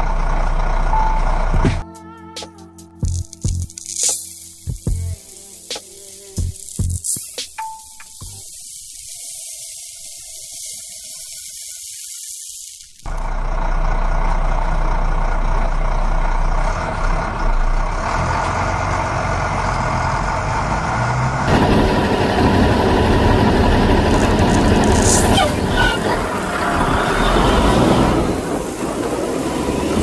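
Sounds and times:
heavy truck engine rumbling: 0.0 - 1.8, 13.1 - 30.0
high hiss: 3.2 - 13.1.

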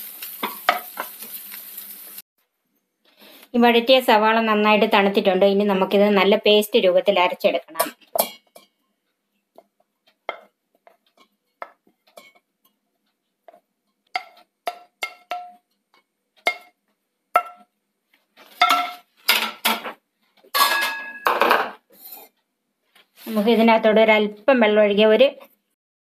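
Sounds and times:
spatula scraping and tapping: 7.8 - 23.2.

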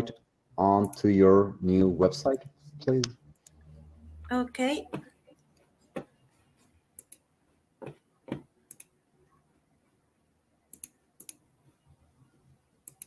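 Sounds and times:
mouse and keyboard clicks: 10.7 - 11.4.

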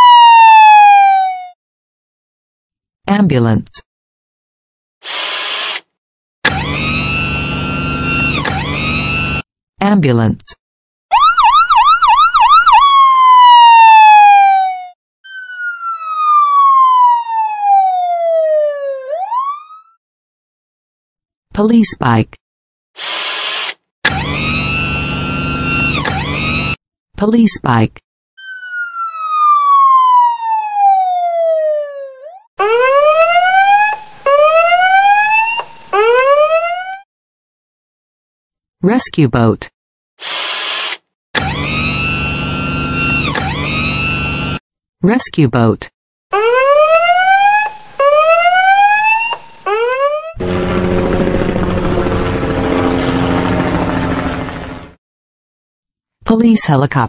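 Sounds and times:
emergency siren yelping and wailing: 0.0 - 1.6, 6.5 - 9.5, 11.1 - 20.0, 24.1 - 26.8, 28.4 - 37.0, 41.4 - 44.6, 46.4 - 55.0.

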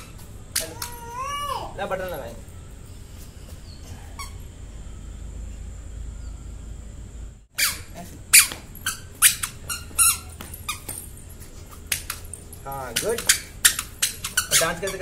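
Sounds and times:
squeaky shoes squeaking: 0.0 - 4.6, 7.6 - 15.0
faint low hum: 0.0 - 15.0.

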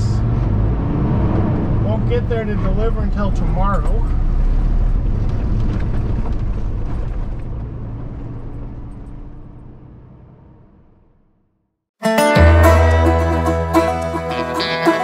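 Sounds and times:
truck engine rumble: 0.0 - 11.4.

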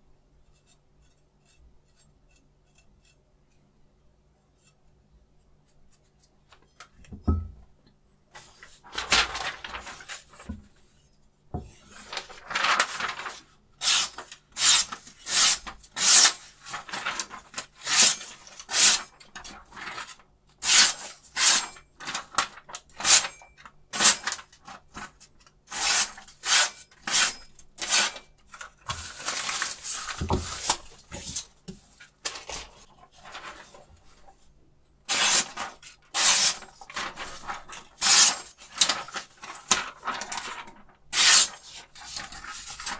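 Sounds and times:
paper rustling: 8.4 - 10.8, 11.6 - 20.3, 21.7 - 23.4, 28.0 - 34.6, 35.2 - 42.9
knife slicing through paper: 11.9 - 19.1, 35.1 - 42.9.

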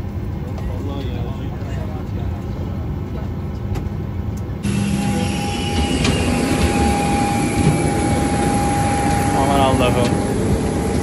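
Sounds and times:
airliner cabin rumble: 0.0 - 11.0
steady high whine: 4.6 - 11.0.

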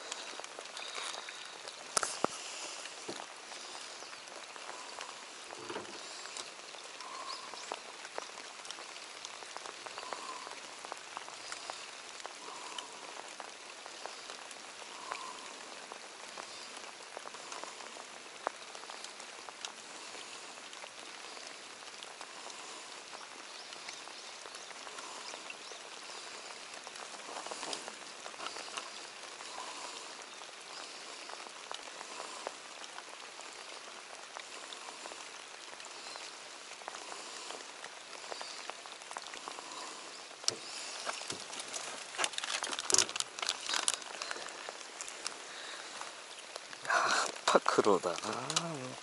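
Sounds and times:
rain falling on water: 0.0 - 49.0.

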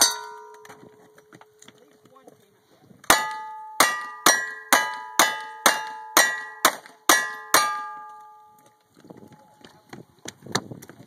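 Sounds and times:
steel plate ringing: 0.0 - 1.2, 3.1 - 8.7.

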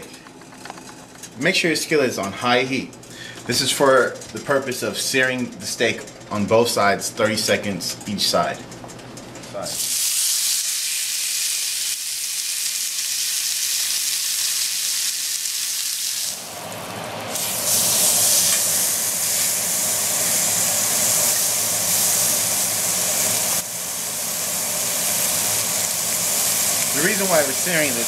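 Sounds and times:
steak sizzling in a skillet: 9.8 - 28.0.

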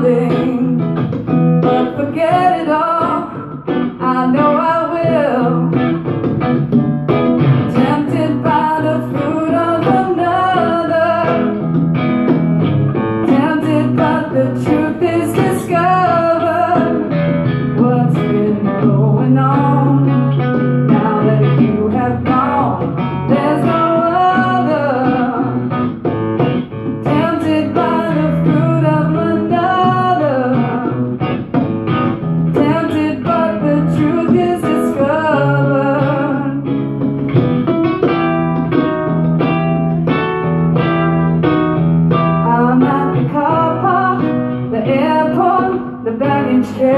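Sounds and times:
woman singing: 0.0 - 6.2, 7.6 - 11.8, 13.0 - 26.0, 26.8 - 31.6, 32.5 - 36.8, 42.4 - 46.9
congas: 0.0 - 46.9
fingerstyle acoustic guitar: 0.0 - 46.9.

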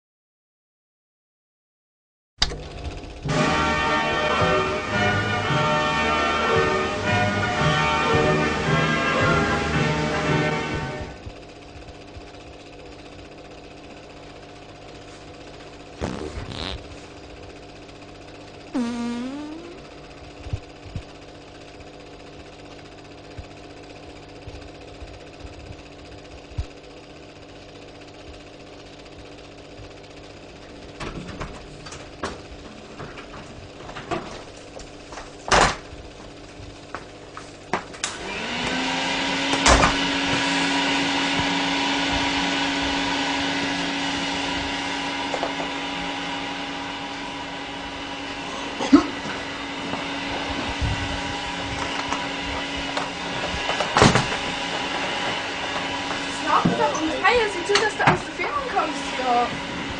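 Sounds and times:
vacuum cleaner motor: 2.4 - 59.9
low hum: 18.8 - 21.0.

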